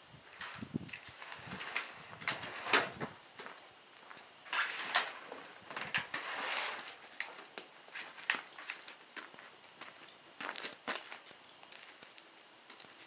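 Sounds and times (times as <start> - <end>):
wood scraping on wood: 4.5 - 8.9.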